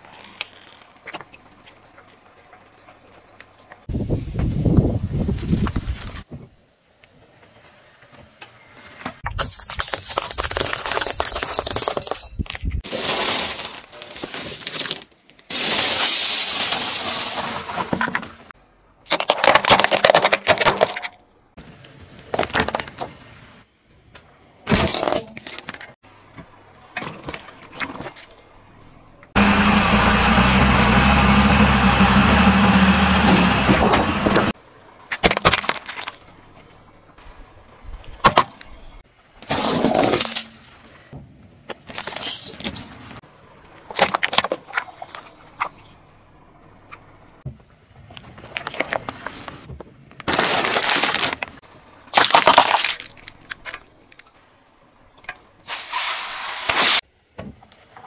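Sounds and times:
tyre crushing objects: 50.2 - 53.6.

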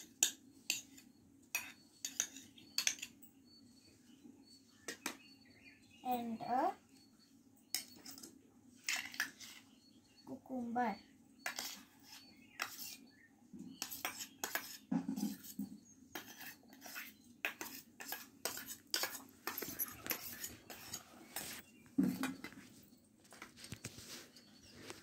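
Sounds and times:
metal spoon scraping steel bowl: 0.0 - 3.2, 7.7 - 9.7, 11.4 - 13.1, 13.7 - 22.6.

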